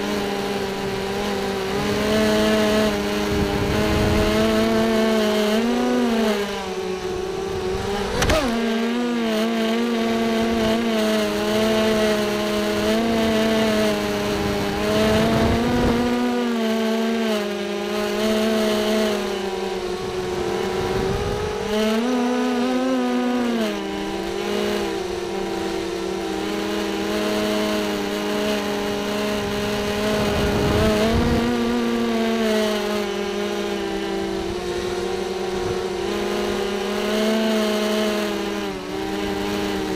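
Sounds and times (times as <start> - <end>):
drone motors whining: 0.0 - 39.9
wind buffeting microphone: 0.9 - 5.1, 12.8 - 16.3, 19.6 - 21.8, 29.3 - 32.1.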